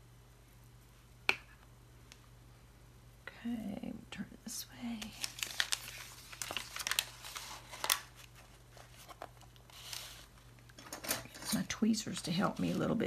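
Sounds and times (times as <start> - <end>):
paper crinkling and rustling: 4.9 - 13.0.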